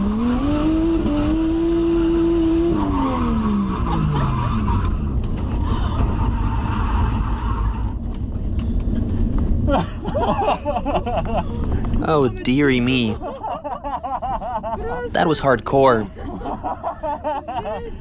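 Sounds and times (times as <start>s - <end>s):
car engine at high revs: 0.0s - 9.6s
tyre and road noise: 0.0s - 13.2s
woman laughing: 9.7s - 11.7s, 16.1s - 18.0s.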